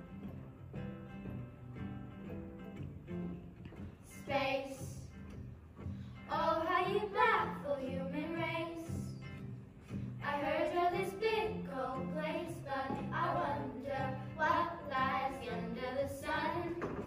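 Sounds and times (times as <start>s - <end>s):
girls singing: 4.1s - 5.2s, 6.2s - 9.2s, 10.2s - 17.0s.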